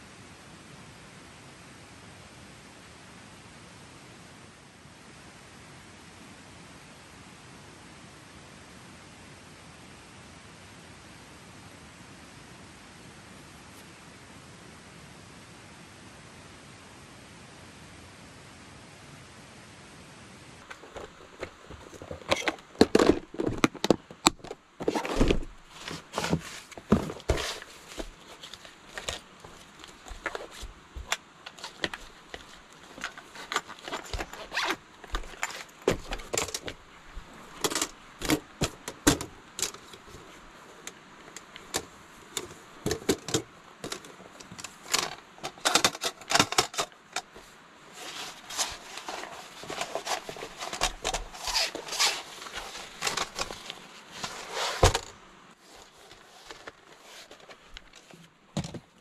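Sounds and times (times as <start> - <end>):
rustling: 20.6 - 59.0
small things clicking and knocking: 20.6 - 59.0.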